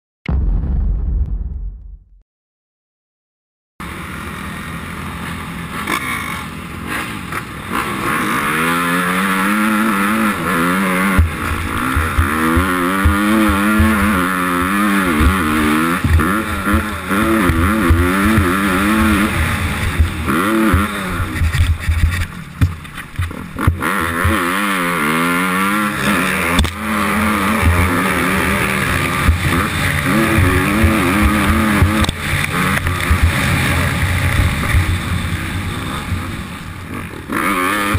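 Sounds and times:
low thuds: 0.3 - 2.2
motocross bike engine revving: 3.8 - 37.9.

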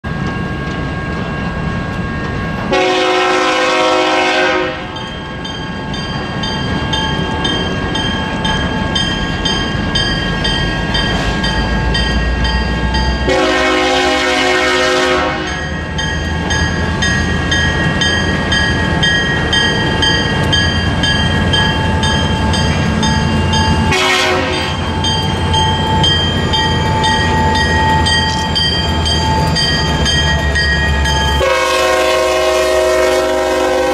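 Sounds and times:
diesel locomotive rumble: 0.0 - 33.9
locomotive air horn blasts: 2.7 - 5.0, 13.2 - 15.6, 23.9 - 24.8, 31.4 - 33.9
bell ringing: 5.0 - 13.4, 15.4 - 31.7.

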